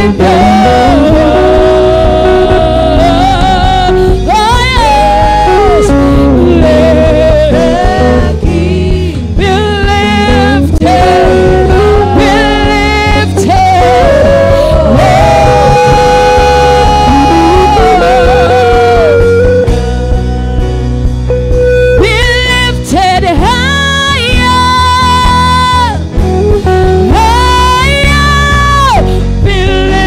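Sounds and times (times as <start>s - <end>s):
woman singing: 0.0s - 20.8s, 22.0s - 30.0s
live band playing chords and bass: 0.0s - 30.0s.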